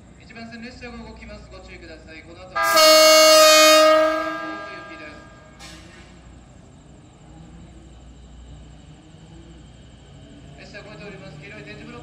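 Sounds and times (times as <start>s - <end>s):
train rumble and hum: 1.3s - 12.0s
train horn: 2.6s - 5.9s.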